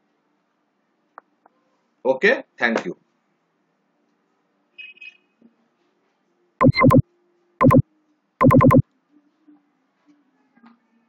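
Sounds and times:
electronic buzzing tone: 8.4 - 8.8.

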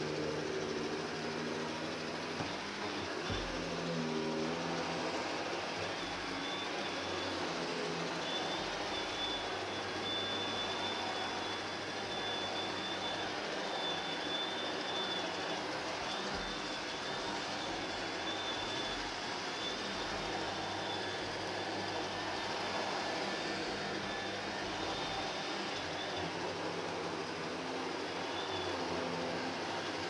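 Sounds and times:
vacuum cleaner running: 0.0 - 30.0.

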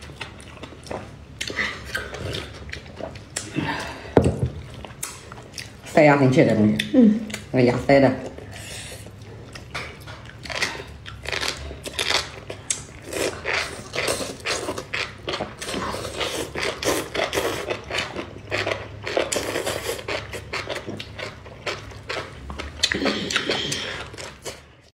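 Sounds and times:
crunchy chewing: 9.0 - 24.9.

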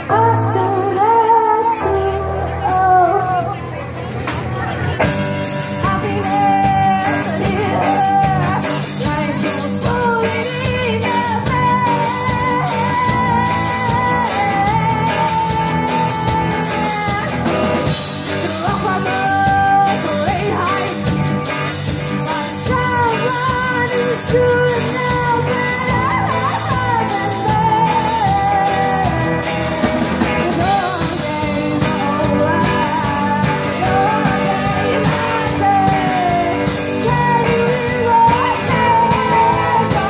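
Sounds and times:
woman singing: 0.0 - 3.9, 5.6 - 40.0
electric guitars: 0.0 - 40.0
keyboard: 0.0 - 40.0
drum kit with cymbals: 4.1 - 40.0.

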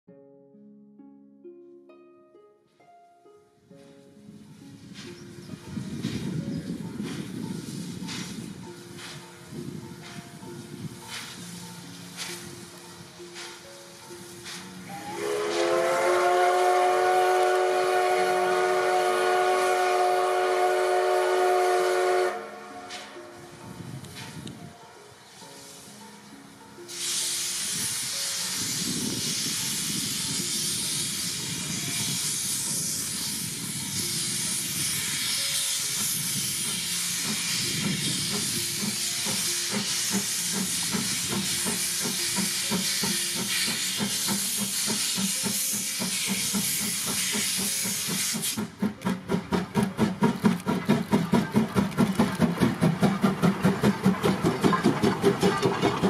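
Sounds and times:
steam locomotive hissing: 3.8 - 56.0
locomotive exhaust and wheels beating: 3.9 - 56.0.

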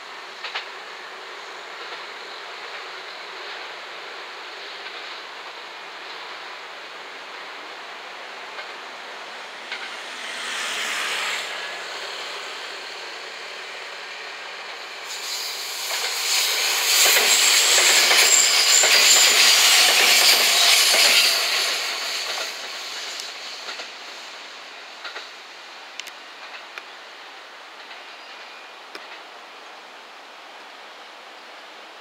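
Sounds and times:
electric train passing: 0.0 - 28.4
high wheel squeal: 9.5 - 14.1, 15.0 - 23.8
rapid train wheel clicks: 9.6 - 11.3, 15.3 - 24.2, 25.0 - 25.4.

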